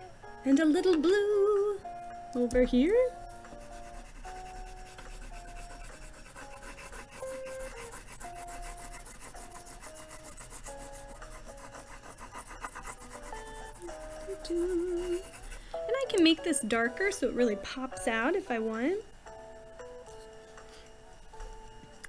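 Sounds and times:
crayon scratching on paper: 3.0 - 16.0.

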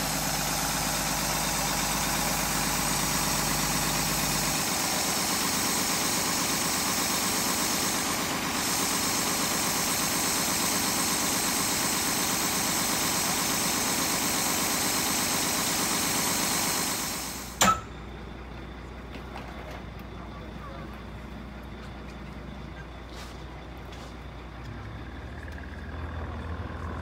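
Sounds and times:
truck engine idling: 0.0 - 27.0
sharp click: 17.6 - 17.9.

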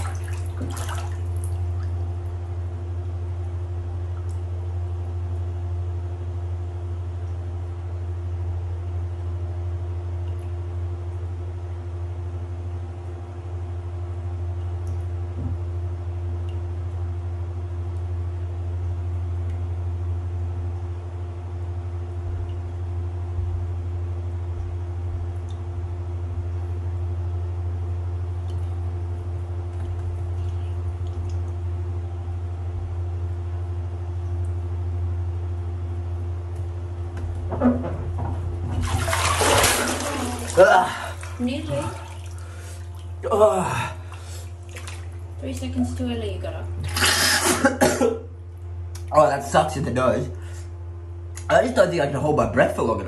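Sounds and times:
low hum with steady tones: 0.0 - 53.0.

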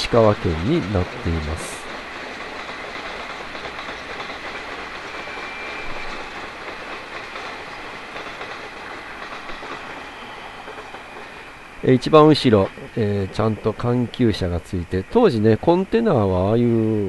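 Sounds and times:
train wheels clattering over rail joints: 0.0 - 11.5.

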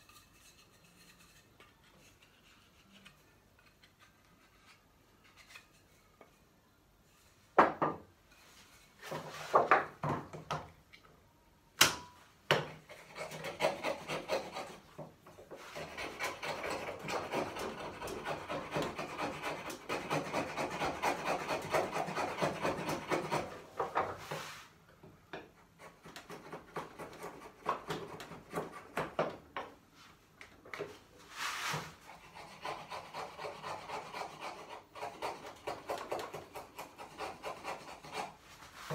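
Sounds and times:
hand tool scraping wood: 12.8 - 24.7, 31.2 - 38.9.

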